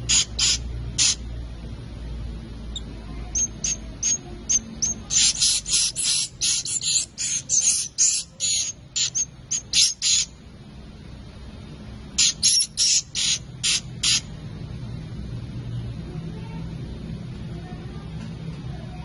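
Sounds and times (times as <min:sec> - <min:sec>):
bird chicks chirping: 0:00.0 - 0:01.2, 0:02.7 - 0:10.4, 0:12.2 - 0:14.3.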